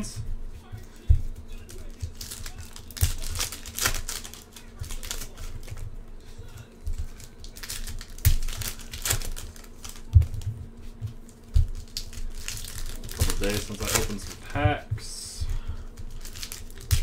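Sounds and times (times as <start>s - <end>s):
foil wrappers crinkling and tearing: 0.7s - 17.0s.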